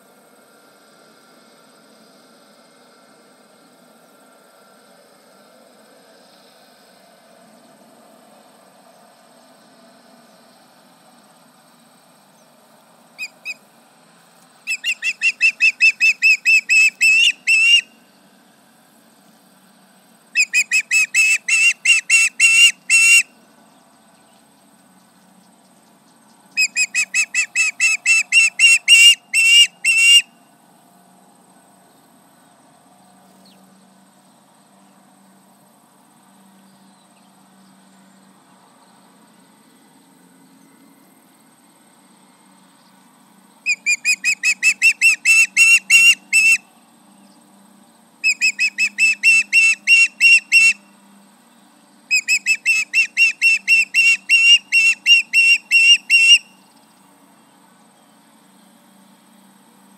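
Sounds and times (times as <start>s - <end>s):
osprey alarm calls: 13.2s - 13.6s, 14.7s - 17.9s, 20.4s - 23.3s, 26.6s - 30.3s, 43.7s - 46.6s, 48.2s - 50.9s, 52.1s - 56.6s.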